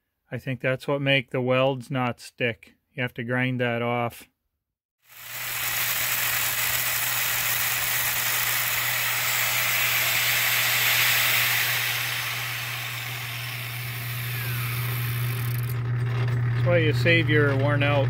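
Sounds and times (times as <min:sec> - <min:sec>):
angle grinder grinding steel: 0:05.1 - 0:18.0
lathe humming: 0:05.1 - 0:18.0.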